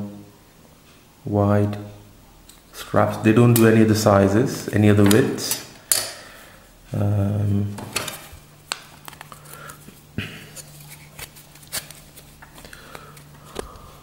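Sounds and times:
faint low hum: 0:00.0 - 0:14.0
person humming: 0:06.9 - 0:07.8.

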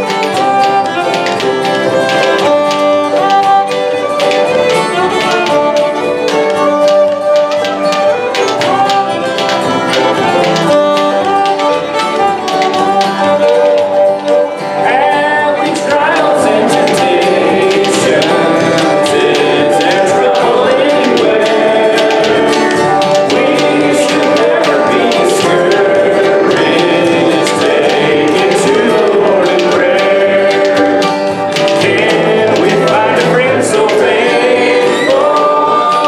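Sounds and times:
acoustic band playing: 0:00.0 - 0:36.0
people singing: 0:14.2 - 0:36.0.

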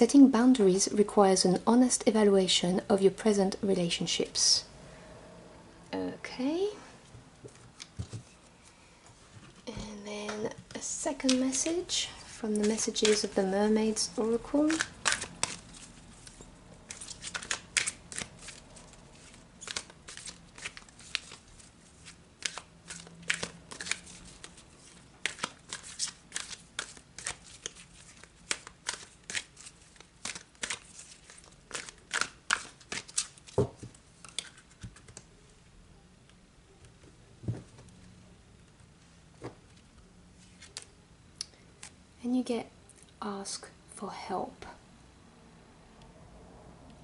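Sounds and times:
cards being shuffled: 0:10.7 - 0:13.5, 0:14.5 - 0:35.3, 0:40.4 - 0:40.9.

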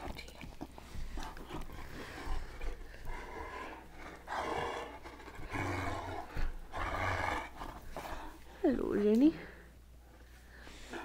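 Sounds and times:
dog play-growling: 0:00.5 - 0:08.4.

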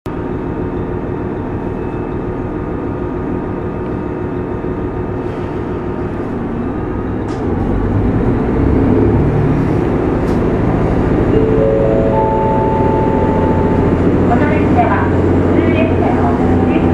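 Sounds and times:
diesel railcar engine running: 0:00.1 - 0:16.9
rising four-note chime: 0:11.4 - 0:14.3.

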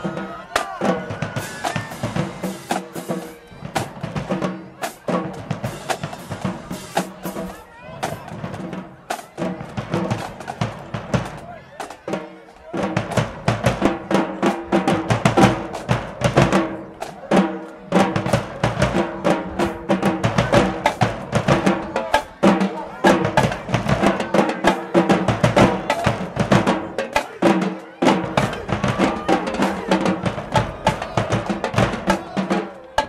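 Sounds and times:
snare drums: 0:00.0 - 0:33.0
bass drums: 0:28.2 - 0:32.6.

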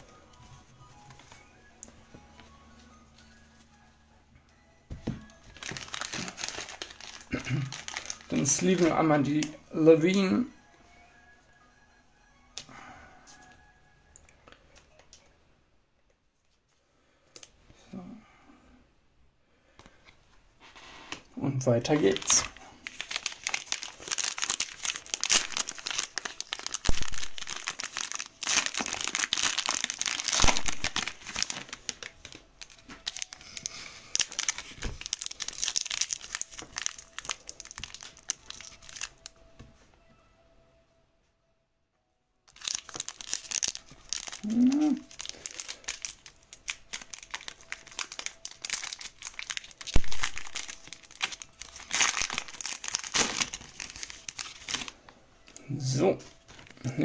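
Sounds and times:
plastic sleeves and foil crinkling: 0:05.0 - 0:10.5, 0:21.6 - 0:39.4, 0:42.5 - 0:57.0.

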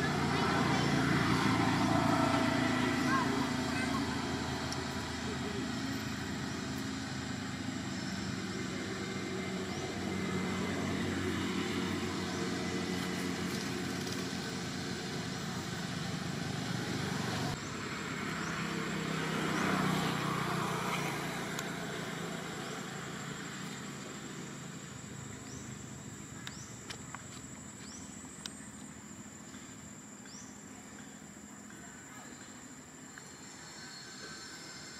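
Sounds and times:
vehicle passing: 0:00.0 - 0:26.2
vehicle engines running: 0:00.0 - 0:34.9.

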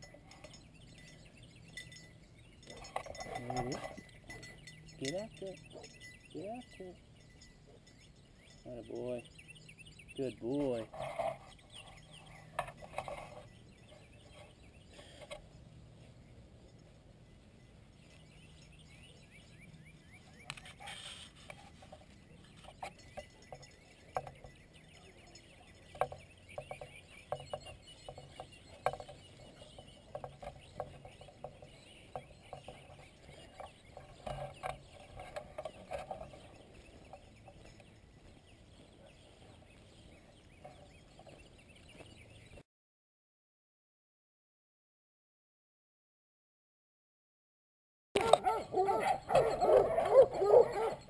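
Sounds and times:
distant hounds baying: 0:02.6 - 0:06.7, 0:38.7 - 0:39.8, 0:48.2 - 0:51.0.

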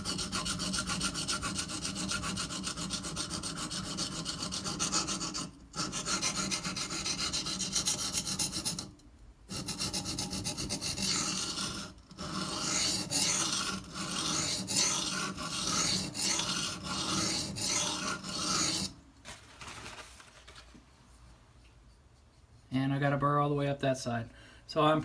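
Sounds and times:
knife rasping on whetstone: 0:00.0 - 0:08.9, 0:09.5 - 0:19.0.

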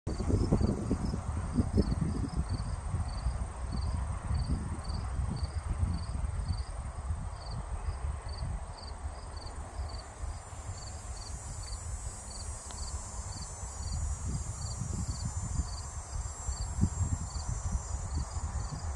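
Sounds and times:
cricket chirping: 0:00.1 - 0:18.9
wind rumbling on microphone: 0:00.1 - 0:18.9.

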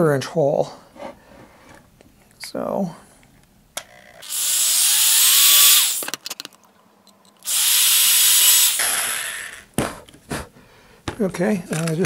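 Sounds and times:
power drill whining: 0:04.2 - 0:06.1, 0:07.4 - 0:09.7.

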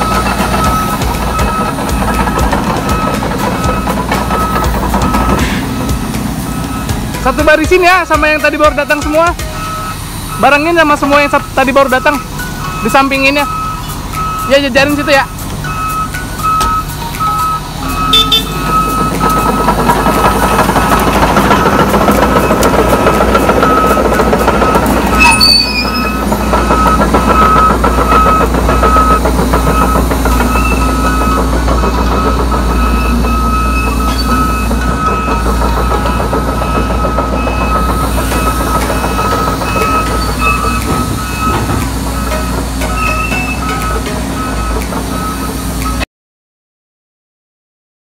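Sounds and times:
travel alarm beeping: 0:00.0 - 0:05.6, 0:06.5 - 0:46.0
excavator diesel engine working: 0:00.0 - 0:46.0
sharp metal squeal or clank: 0:25.1 - 0:26.2, 0:33.7 - 0:34.7, 0:39.0 - 0:43.7.

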